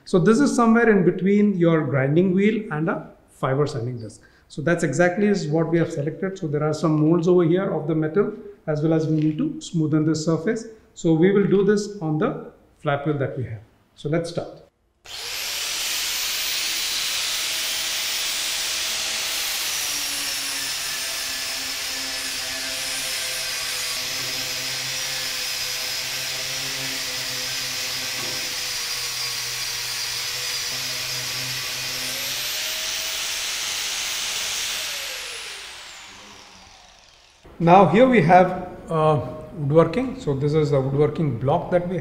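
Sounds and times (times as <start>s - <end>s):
angle grinder motor whine: 15.1s - 37.6s.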